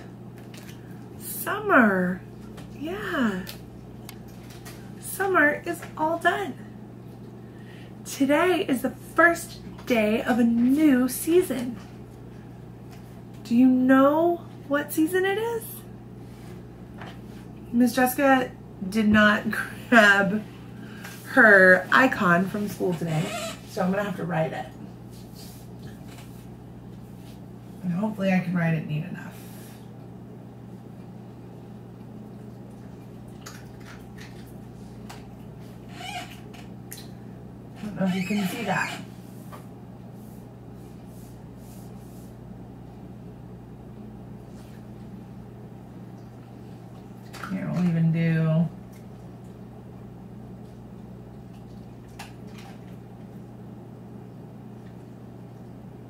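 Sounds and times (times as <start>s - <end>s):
steady low hum: 0.0s - 56.0s
marker squeaking on whiteboard: 23.1s - 23.7s.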